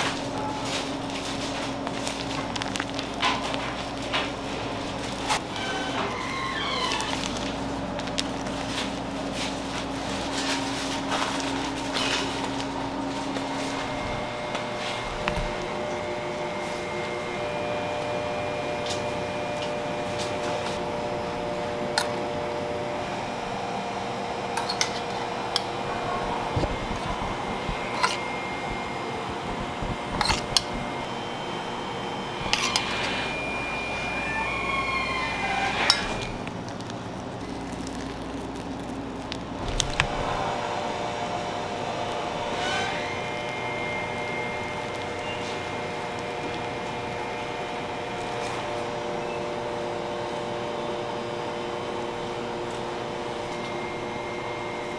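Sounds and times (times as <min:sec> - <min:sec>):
machine hum: 0:00.0 - 0:54.9.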